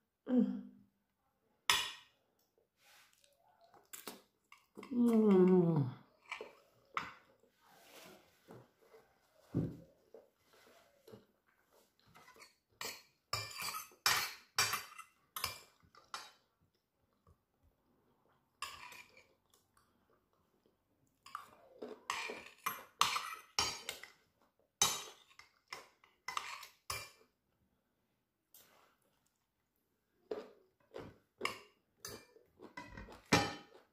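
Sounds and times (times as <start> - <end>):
cutlery scraping on a plate: 12.1 - 16.4, 18.6 - 19.3, 22.1 - 24.2, 24.8 - 27.2.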